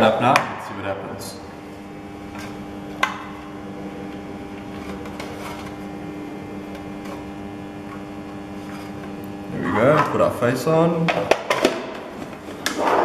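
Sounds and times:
steady hum: 0.0 - 13.0.

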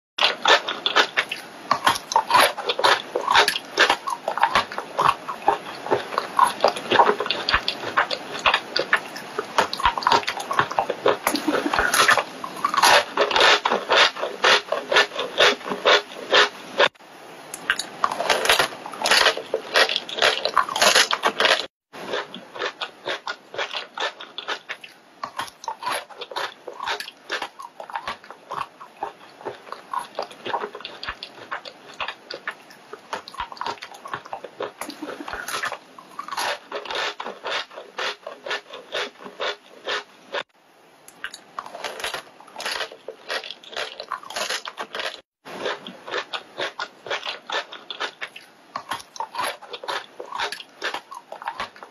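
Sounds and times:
chipmunk crunching food: 0.2 - 16.9, 17.6 - 40.4, 41.1 - 51.9.

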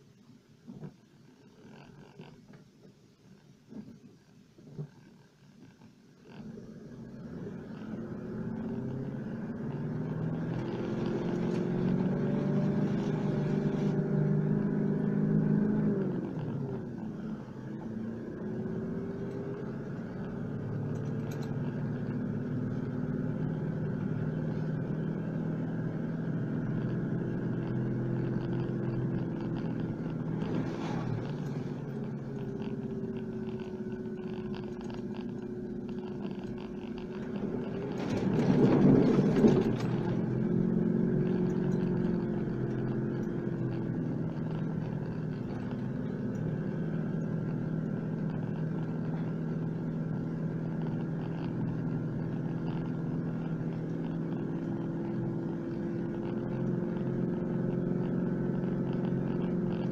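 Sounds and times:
vehicle engine pulling: 6.4 - 59.9.

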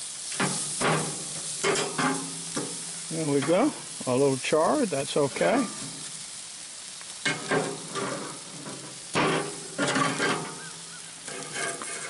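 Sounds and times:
ribs sizzling on a grill: 0.0 - 12.0
metal flipper scraping grill grates: 0.2 - 4.0, 7.2 - 12.0.

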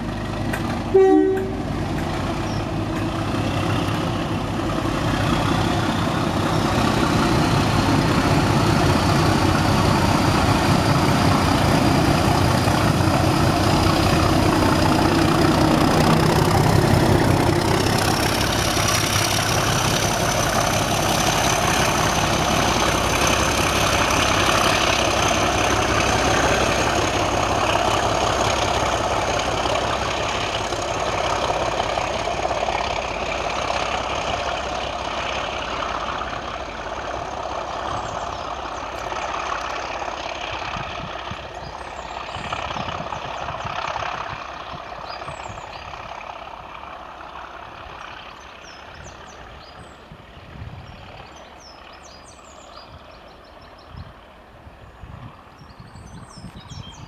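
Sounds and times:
diesel locomotive engine accelerating: 0.0 - 57.0
train horn blast: 0.9 - 1.8.

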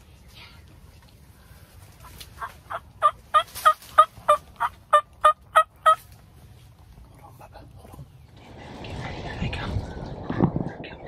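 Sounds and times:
turkey yelps: 2.4 - 6.0.

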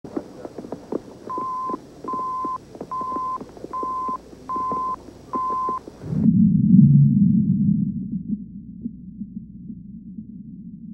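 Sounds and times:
alert tone beeps: 1.3 - 5.8.

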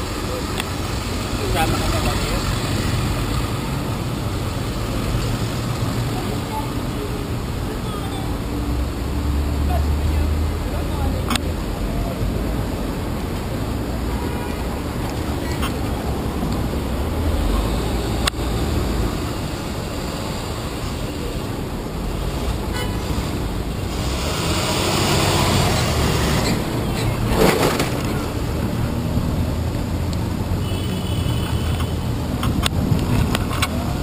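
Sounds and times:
traffic rumble: 0.0 - 34.0
truck passing close: 22.0 - 30.4.

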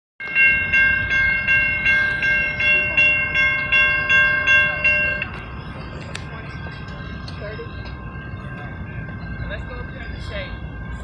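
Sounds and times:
railroad crossing bell ringing: 0.2 - 11.0.

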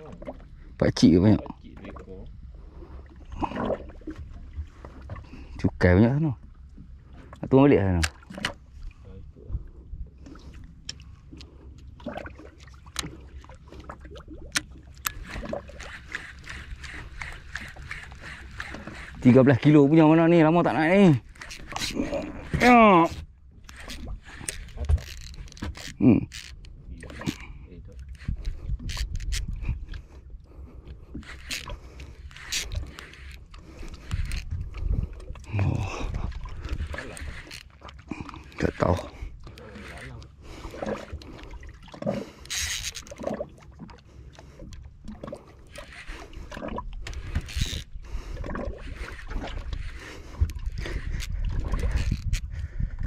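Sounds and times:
boat low rumble: 0.0 - 53.0
water lapping and sloshing: 0.0 - 53.0
knocks clicks and scrapes of handling: 21.2 - 30.0, 30.8 - 34.9, 42.0 - 43.4, 44.6 - 52.6.

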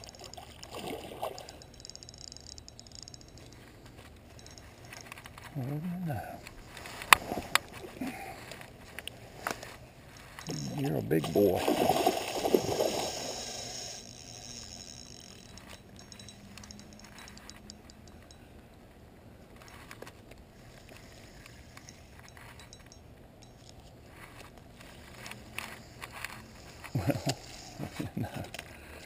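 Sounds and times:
fishing reel clicking: 0.0 - 5.3, 10.2 - 18.4, 25.1 - 27.9
fish splashing and thrashing: 0.0 - 5.4, 6.6 - 18.0.

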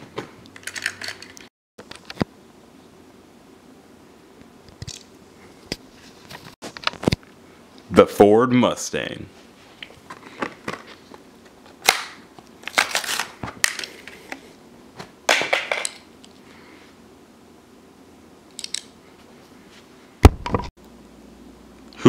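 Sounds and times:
plastic packaging crackling: 12.6 - 13.8.

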